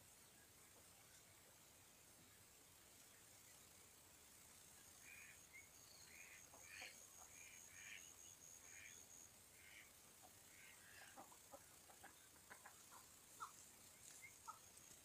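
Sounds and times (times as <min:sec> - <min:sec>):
ducks quacking: 0:09.6 - 0:13.6.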